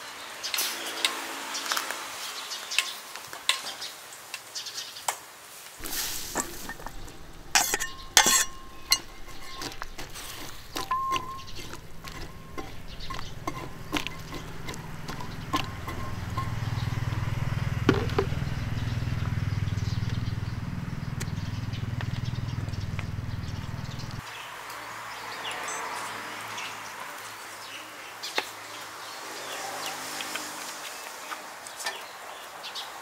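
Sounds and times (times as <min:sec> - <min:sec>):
spatula scraping a wok: 0:05.8 - 0:17.6
low rumble: 0:05.8 - 0:24.2
light clinks: 0:05.9 - 0:24.2.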